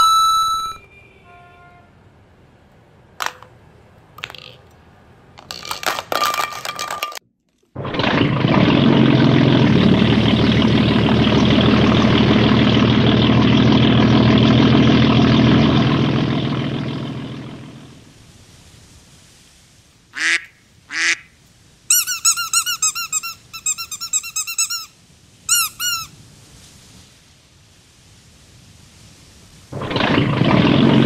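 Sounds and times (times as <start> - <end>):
rubber duck squeaking: 0.0 - 0.8, 21.9 - 26.1
boat engine running: 7.8 - 18.0, 29.7 - 31.0.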